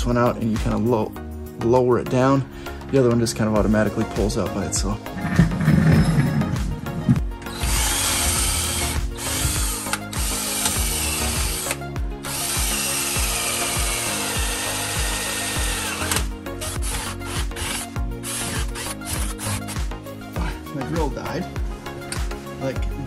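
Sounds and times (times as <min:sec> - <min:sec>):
music with a steady beat: 0:00.0 - 0:23.0
power tool chiseling: 0:07.5 - 0:19.9.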